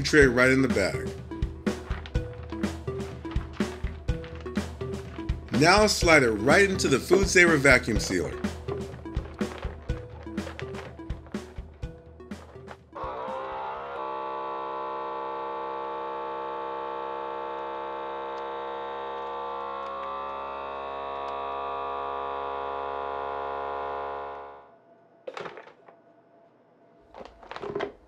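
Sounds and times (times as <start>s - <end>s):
vacuum sealer pump running: 13.0s - 24.6s.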